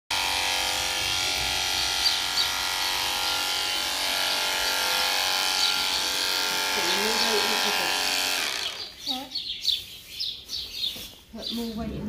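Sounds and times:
electric clippers running: 0.1s - 9.2s.

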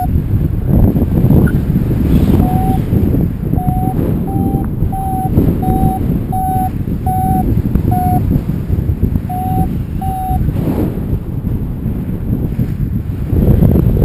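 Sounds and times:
wind noise on microphone: 0.0s - 14.0s
variometer short beeps: 1.4s - 8.4s, 9.2s - 10.5s.

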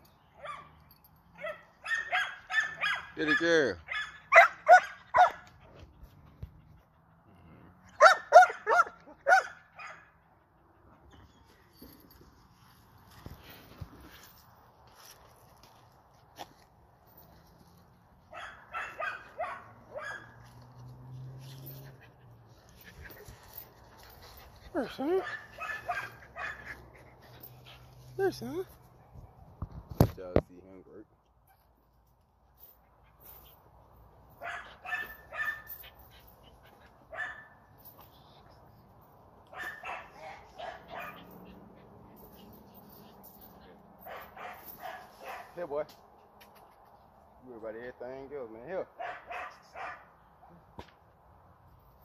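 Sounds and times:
dog barking: 1.4s - 5.4s, 8.0s - 10.1s, 18.3s - 20.4s, 25.1s - 26.7s, 34.4s - 35.7s, 37.1s - 37.6s, 39.5s - 41.4s, 44.0s - 45.6s, 49.0s - 50.1s.

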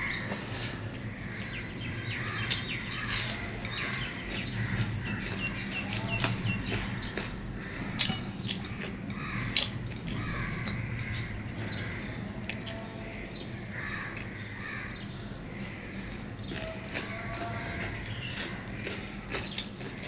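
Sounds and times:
bird chirping: 1.1s - 8.7s
chewing: 2.4s - 11.2s, 16.1s - 20.0s.

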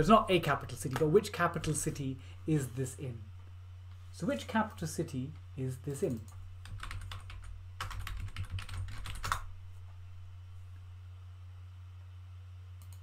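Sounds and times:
steady low hum: 0.0s - 13.0s
computer keyboard typing: 6.0s - 9.5s.

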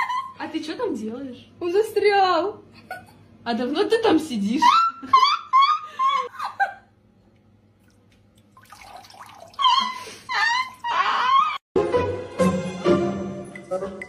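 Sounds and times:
water sloshing: 7.8s - 10.9s
music: 11.8s - 14.0s.

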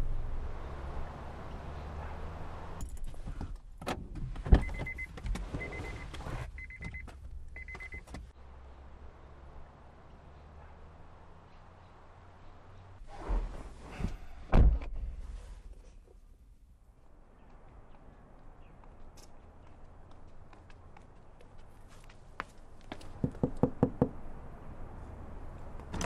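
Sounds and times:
car warning chime beeping: 4.6s - 8.1s.

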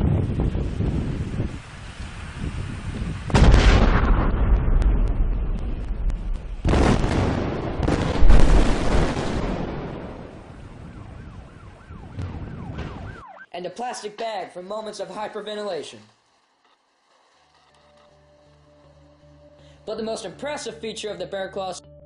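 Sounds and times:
explosion blasts rumbling: 3.2s - 13.2s.

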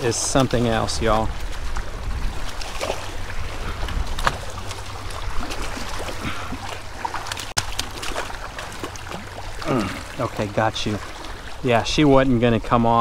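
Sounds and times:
wind buffeting microphone: 0.0s - 7.0s
fish thrashing and splashing: 0.0s - 11.6s
water sloshing against rocks: 0.0s - 13.0s.

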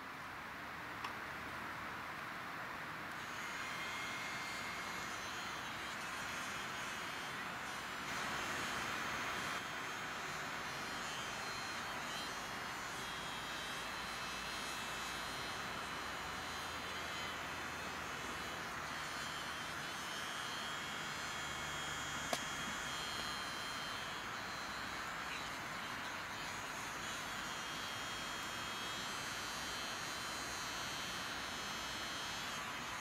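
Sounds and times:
sharp click: 22.3s - 22.5s.

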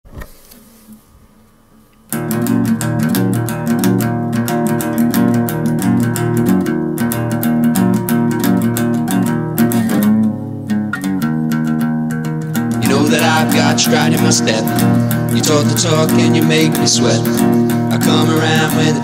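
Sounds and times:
acoustic guitar strumming chords: 2.1s - 19.0s.

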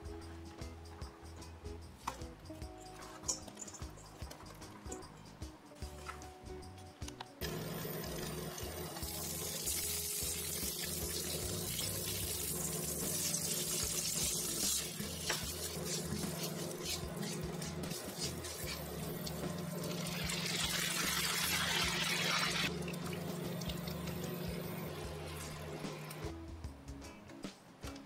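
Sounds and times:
butter and sugar sizzling in a pan: 7.6s - 22.7s.

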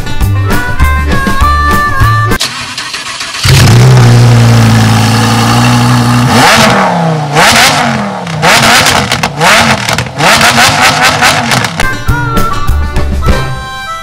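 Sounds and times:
car engine revving: 2.4s - 11.8s
car engine starting and idling: 2.4s - 11.8s.

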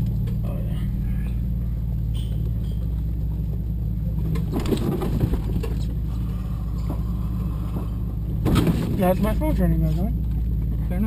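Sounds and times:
car engine running low: 0.0s - 11.0s
crunching and rattling over rocks: 4.2s - 9.2s.

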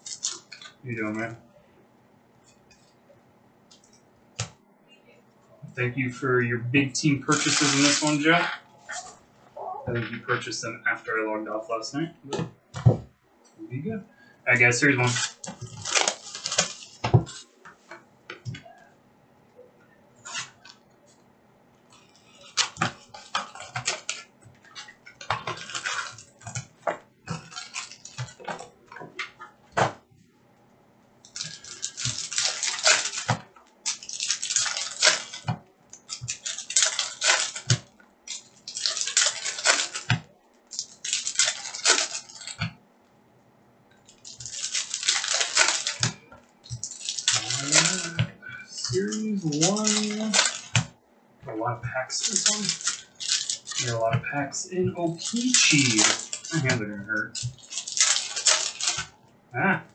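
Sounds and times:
wrapper tearing: 0.0s - 1.3s, 7.0s - 9.2s, 14.5s - 17.5s, 20.2s - 20.8s, 21.9s - 28.8s, 31.2s - 42.7s, 44.0s - 51.0s, 52.0s - 54.2s, 55.0s - 59.2s
cards rustling and clicking: 7.0s - 9.2s, 14.5s - 18.7s, 21.9s - 30.0s, 31.2s - 42.8s, 44.0s - 51.0s, 52.0s - 59.2s.

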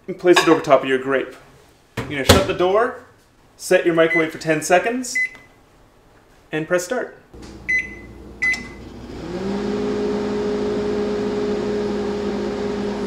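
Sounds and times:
microwave oven humming: 7.4s - 13.0s
microwave keypad beeping: 7.6s - 8.8s.

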